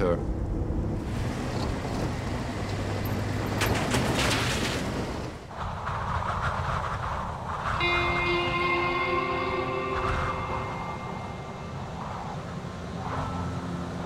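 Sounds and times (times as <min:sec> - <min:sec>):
car engine and tyres rumbling: 0:00.0 - 0:07.8, 0:11.7 - 0:14.0.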